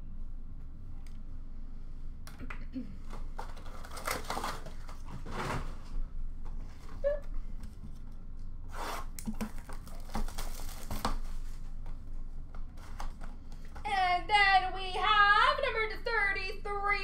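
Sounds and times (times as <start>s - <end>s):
wrappers rustling and crinkling: 3.3s - 6.0s, 9.3s - 11.9s.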